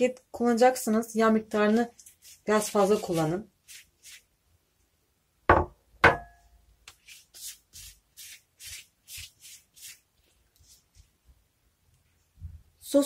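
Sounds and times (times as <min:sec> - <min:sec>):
pastry brush swishing: 0:01.5 - 0:04.4, 0:06.9 - 0:11.3
glass bowl knocking on counter: 0:05.5 - 0:06.4.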